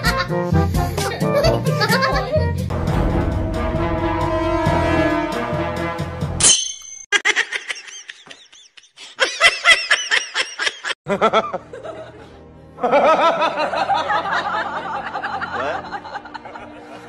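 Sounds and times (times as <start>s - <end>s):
person laughing: 0.0s - 0.4s, 1.0s - 2.4s, 7.1s - 13.9s
background music: 0.0s - 6.5s, 11.1s - 17.0s.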